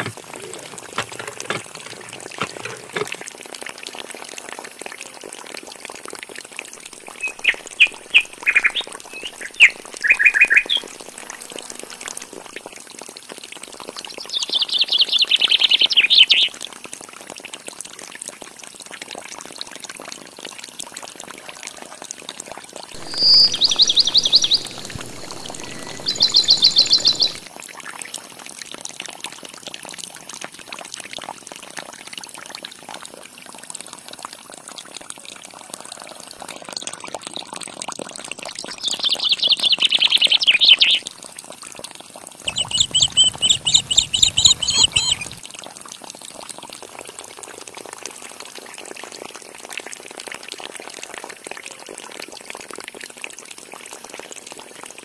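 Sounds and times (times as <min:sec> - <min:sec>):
water pouring and splashing: 0:00.0 - 0:14.4, 0:15.8 - 0:38.9
rapid bird chirping: 0:07.0 - 0:12.2, 0:23.0 - 0:27.5, 0:42.5 - 0:45.4.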